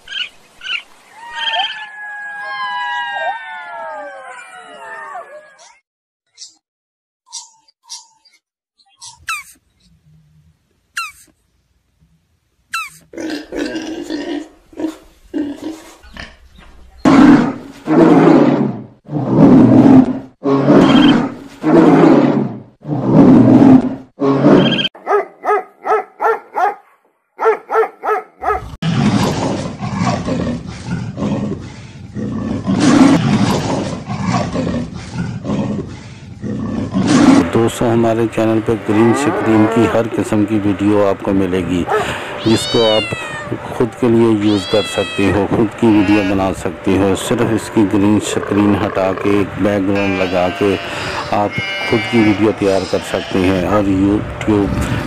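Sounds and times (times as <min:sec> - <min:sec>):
animal growling: 0:17.0 - 0:24.8, 0:28.5 - 0:37.7, 0:38.8 - 0:40.1, 0:47.1 - 0:49.6
animal roaring: 0:17.0 - 0:24.8, 0:28.5 - 0:37.7, 0:38.8 - 0:40.2.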